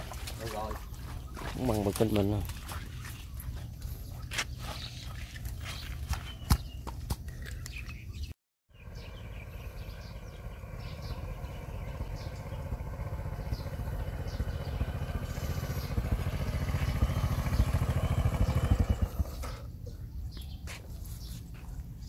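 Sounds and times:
motor scooter engine running: 8.8s - 19.8s.

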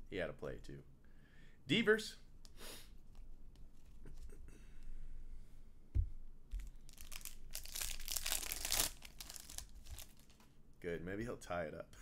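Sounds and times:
wrapper crinkling and tearing: 6.7s - 10.5s.

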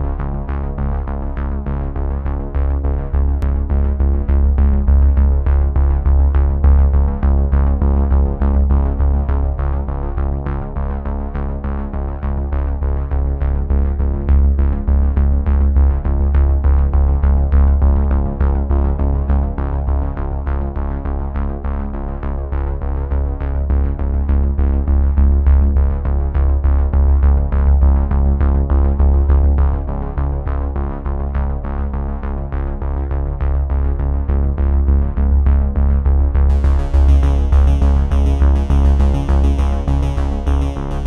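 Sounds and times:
drum machine beat: 36.5s - 41.0s.

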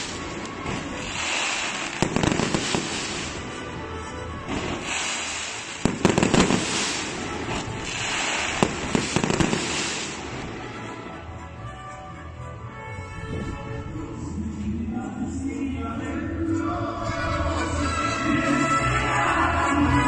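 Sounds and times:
hiss of burning sparks: 0.0s - 3.6s, 4.5s - 10.4s
fireworks bangs and crackling: 0.0s - 11.4s.

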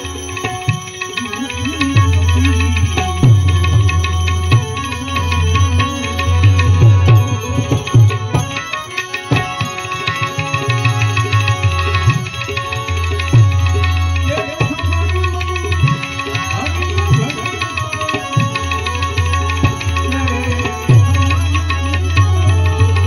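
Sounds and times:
hand cymbals: 0.0s - 23.0s
harmonium: 0.0s - 23.0s
tabla strokes: 0.0s - 23.0s
man singing: 14.2s - 23.0s.

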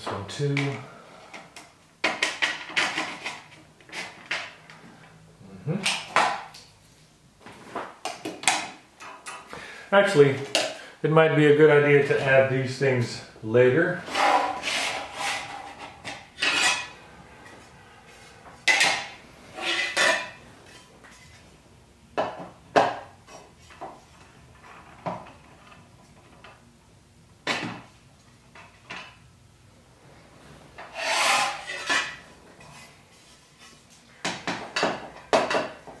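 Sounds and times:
sliding rub on table: 30.4s - 33.5s.

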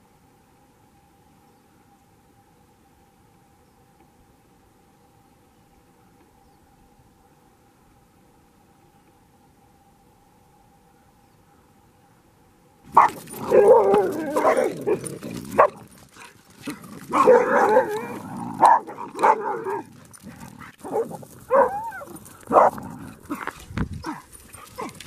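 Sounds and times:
dogs barking: 12.9s - 25.0s
dogs yelping: 12.9s - 25.0s.

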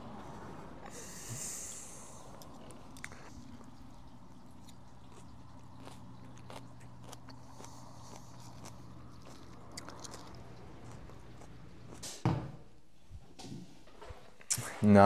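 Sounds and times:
low steady hum: 0.0s - 14.0s
chewing and crunching lettuce: 2.2s - 12.0s.

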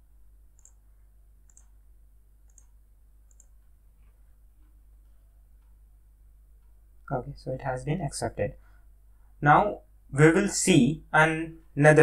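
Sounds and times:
low electrical hum: 0.0s - 12.0s
computer mouse clicks: 0.6s - 0.8s, 1.4s - 1.8s, 2.4s - 4.8s.

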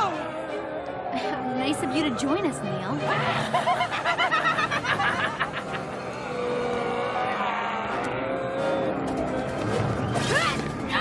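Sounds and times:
high-pitched cackling laugh: 3.1s - 6.2s.

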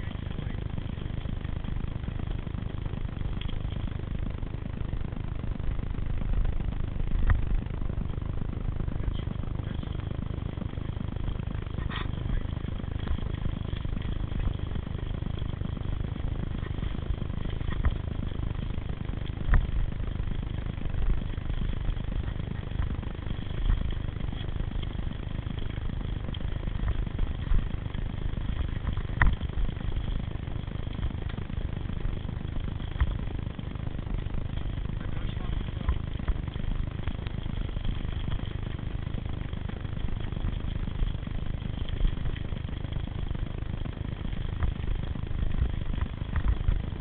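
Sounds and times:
wind and riding rumble: 0.0s - 47.0s.

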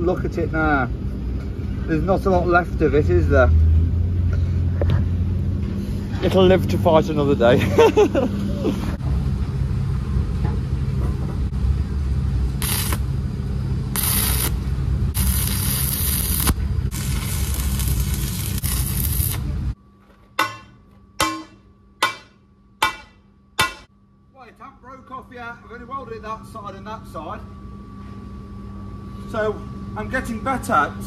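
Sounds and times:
low hum: 0.0s - 31.0s
welding arc crackling: 12.5s - 13.2s, 13.8s - 19.8s
metal knocks on steel: 20.4s - 23.9s.

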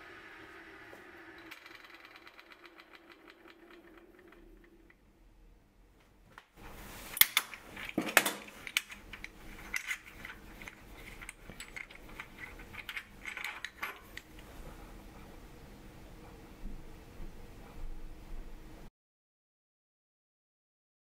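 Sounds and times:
small brass parts clicking: 7.2s - 14.4s.

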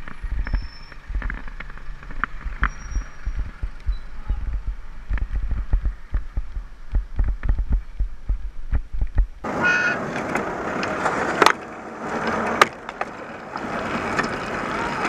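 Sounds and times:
wind buffeting microphone: 0.0s - 9.5s
road and traffic noise: 0.0s - 15.0s
horn toot: 9.5s - 10.1s.

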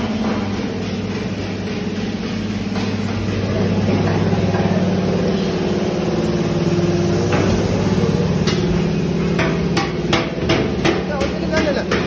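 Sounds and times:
heavy machinery humming: 0.0s - 12.0s
hammer striking metal: 8.4s - 12.0s.

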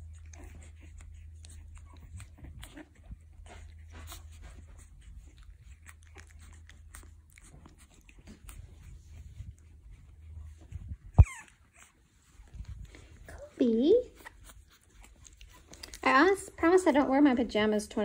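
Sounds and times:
puppy chewing clicks and snuffles: 0.0s - 11.6s, 14.2s - 16.1s
low steady hum: 0.0s - 18.0s.

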